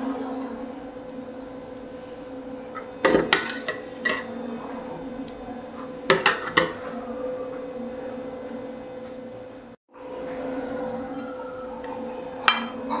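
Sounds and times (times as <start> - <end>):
metal spoon clinking on pot: 12.4 - 12.8.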